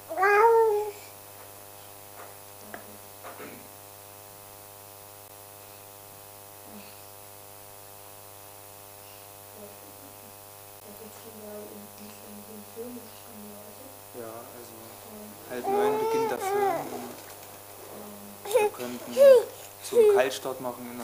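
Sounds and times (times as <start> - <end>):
small child's vocal sound: 0.0 - 1.1, 15.6 - 17.1, 18.4 - 20.2
electrical mains hum: 0.0 - 21.0.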